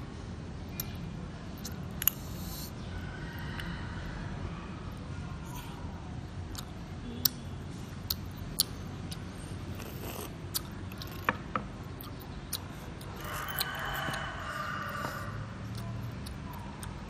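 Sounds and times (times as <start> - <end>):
chewing and sipping: 6.4 - 6.8, 8.0 - 17.0.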